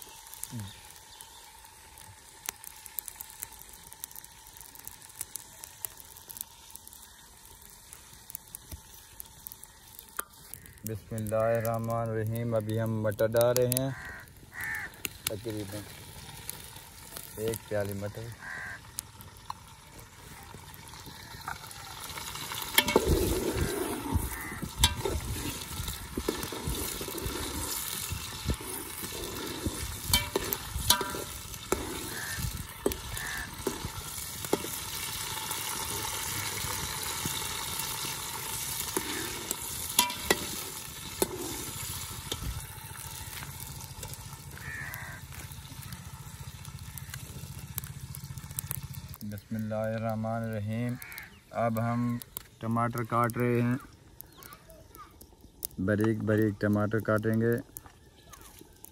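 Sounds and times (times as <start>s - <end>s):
vegetables sizzling in pot: 0.0s - 58.9s
metal spatula scraping pot: 21.5s - 35.2s, 38.1s - 42.6s.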